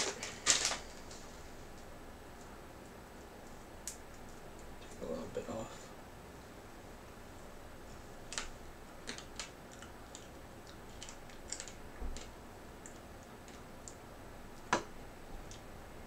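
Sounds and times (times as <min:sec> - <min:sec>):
dry noodles snapping and crackling: 0:00.0 - 0:01.2, 0:03.7 - 0:04.3, 0:08.3 - 0:14.9.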